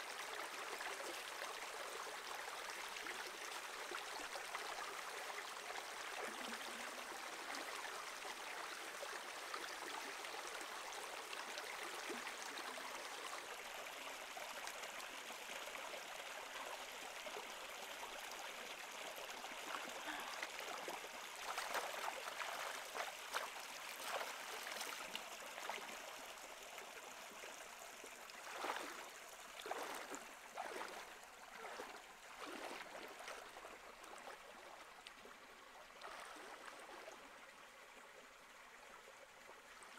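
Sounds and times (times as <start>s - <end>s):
stream running over rocks: 0.0s - 39.9s
splashes from wading: 21.4s - 25.8s, 28.4s - 29.0s, 29.6s - 34.4s, 36.0s - 37.0s.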